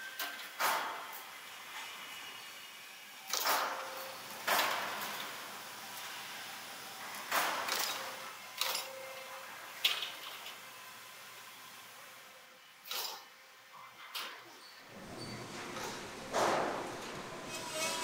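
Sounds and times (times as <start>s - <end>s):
faint machine hum: 0.1s - 13.7s, 14.7s - 18.0s
mechanical strokes: 15.0s - 18.0s.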